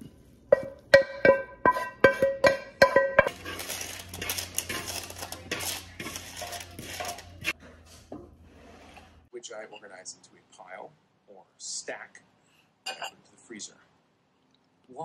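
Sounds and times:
food scraping off pan into bowl: 1.6 - 7.6.

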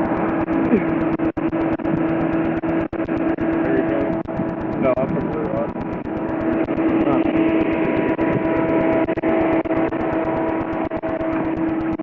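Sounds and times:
pitched hum: 0.0 - 12.0
vehicle engine and road noise: 0.0 - 12.0.

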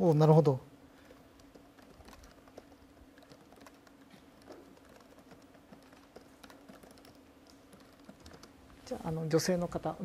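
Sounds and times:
laptop keyboard typing: 1.0 - 9.0.

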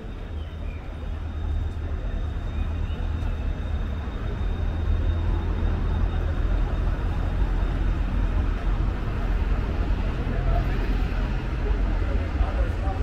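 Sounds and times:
faint high whine: 0.0 - 13.0
road traffic rumble: 0.0 - 13.0.

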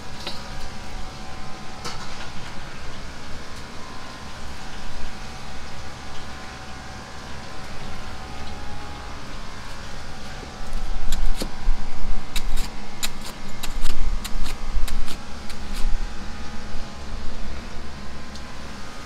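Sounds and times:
background hum: 0.0 - 19.0.

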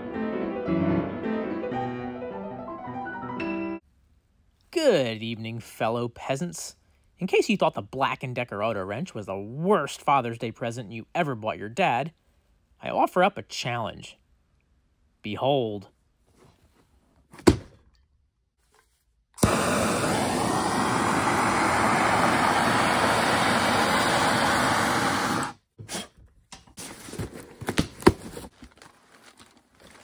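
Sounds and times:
box landing on bench: 17.3 - 17.8
gas torch hissing: 19.4 - 25.6
cardboard and tape tearing: 26.8 - 30.0.

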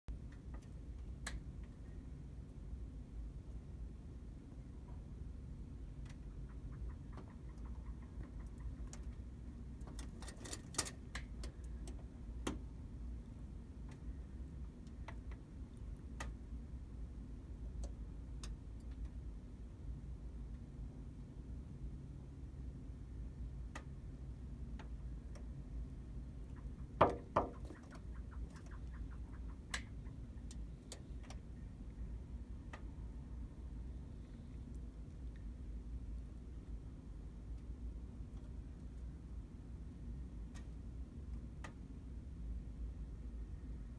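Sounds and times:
bird bill tapping on window glass: 6.1 - 9.2, 26.4 - 31.4.

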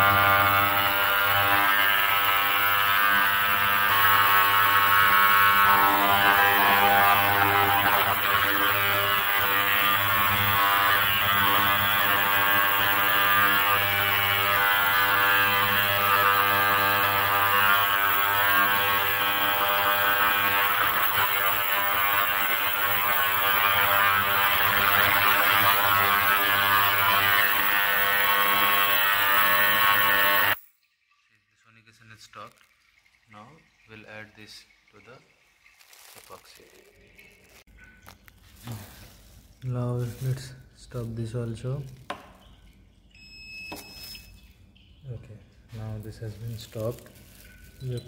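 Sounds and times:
ultrasonic cleaner buzzing: 0.0 - 30.6.

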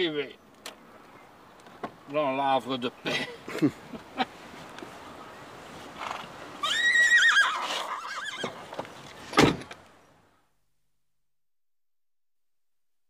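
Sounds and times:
car door shutting: 8.4 - 9.8.

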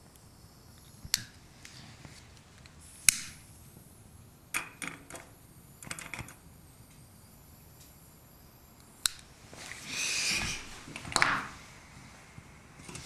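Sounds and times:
lighter clicking: 3.0 - 3.4.

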